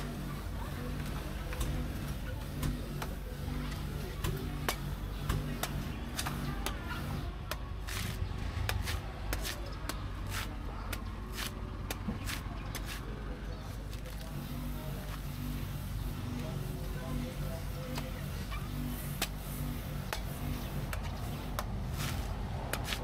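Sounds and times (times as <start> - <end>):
knife chopping coconut husk: 4.2 - 13.2, 20.1 - 23.0.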